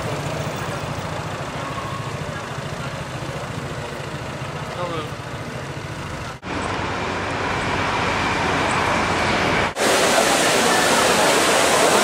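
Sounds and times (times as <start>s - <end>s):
cars and scooters passing: 0.0s - 12.0s
fountain water rushing: 9.7s - 12.0s.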